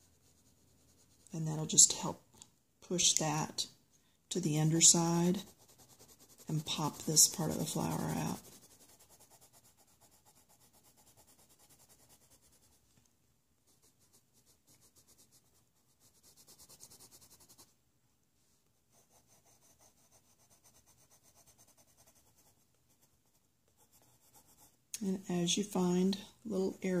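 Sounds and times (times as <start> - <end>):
pencil scratching on paper: 0.0 - 1.3, 4.6 - 12.8, 13.7 - 17.7, 18.9 - 24.8.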